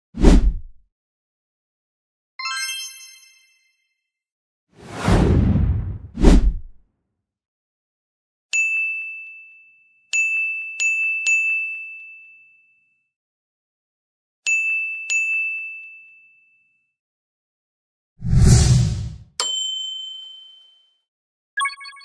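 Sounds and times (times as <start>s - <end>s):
short whoosh: 4.8s - 6.7s, 18.2s - 19.2s.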